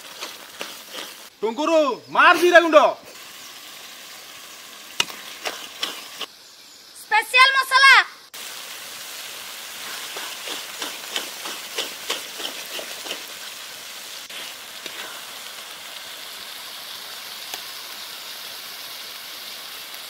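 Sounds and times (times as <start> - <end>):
spoon scraping pan: 0.0 - 1.3, 5.0 - 6.3, 9.9 - 13.3
masala sizzling in oil: 0.0 - 20.0.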